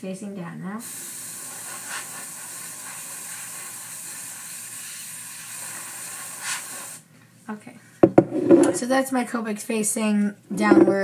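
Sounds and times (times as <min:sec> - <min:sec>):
airbrush spraying hiss: 0:00.8 - 0:07.0.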